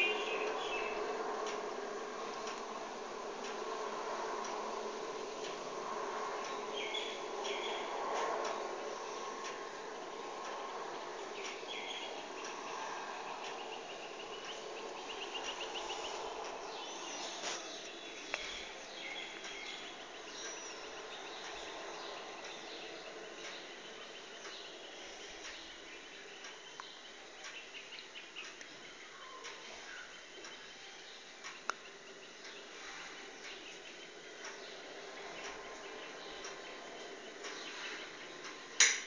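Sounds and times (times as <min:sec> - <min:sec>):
background ambience: 0:00.0 - 0:39.0
soft clicks: 0:01.3 - 0:01.7.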